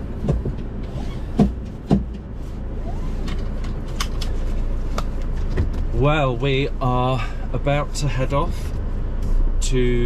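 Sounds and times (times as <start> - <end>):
sharp knocks: 1.3 - 2.3.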